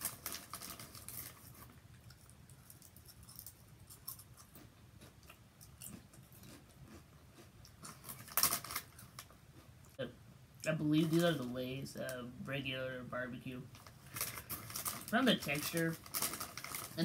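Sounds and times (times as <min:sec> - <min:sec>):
foil bag crinkling: 0:00.0 - 0:01.7, 0:07.9 - 0:09.3, 0:13.7 - 0:17.0
potato chip crunching: 0:00.0 - 0:09.3, 0:13.8 - 0:17.0.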